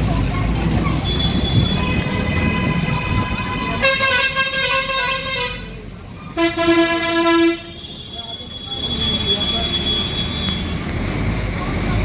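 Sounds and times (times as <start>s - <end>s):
street traffic rumbling: 0.0s - 12.0s
loud vehicle horn: 1.0s - 5.8s, 6.4s - 10.8s.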